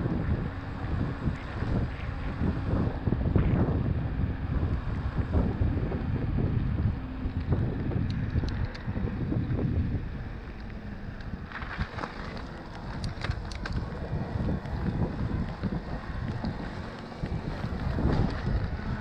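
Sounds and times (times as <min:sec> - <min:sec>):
wind buffeting microphone: 0:00.0 - 0:19.0
bike clicks and rattles: 0:07.2 - 0:19.0.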